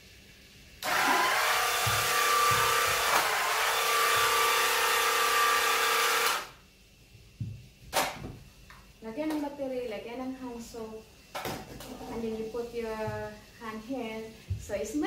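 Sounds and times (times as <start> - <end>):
small electric motor running: 0.8 - 6.5.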